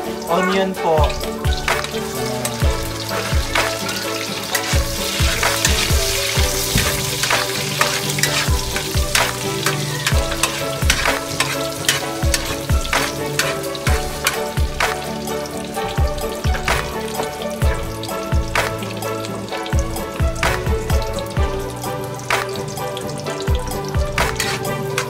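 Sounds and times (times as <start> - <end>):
background music with steady beat: 0.0 - 25.0
garlic and onion sizzling in oil: 0.0 - 25.0
spatula stirring in wok: 2.8 - 14.9, 23.6 - 25.0.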